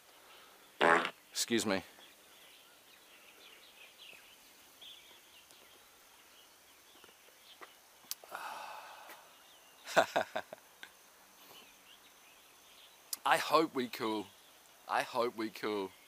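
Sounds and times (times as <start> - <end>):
faint bird chirps: 0.0 - 16.0
breathy exhale: 8.2 - 9.4.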